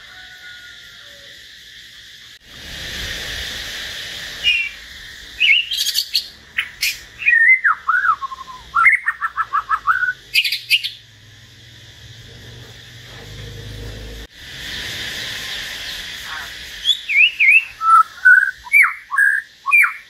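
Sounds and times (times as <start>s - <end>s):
steady hiss: 0.0s - 20.0s
harsh bird calls: 4.1s - 11.2s, 12.2s - 20.0s
birds singing whistled notes: 4.4s - 11.1s, 14.6s - 20.0s.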